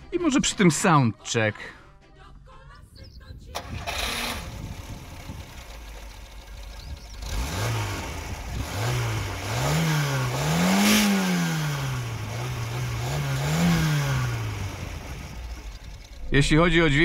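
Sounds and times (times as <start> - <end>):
car engine idling and revving: 3.5 - 17.0.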